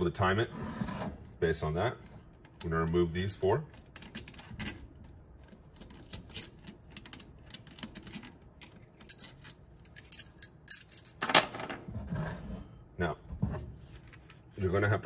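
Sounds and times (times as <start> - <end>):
metal bolts clinking: 5.8 - 11.9.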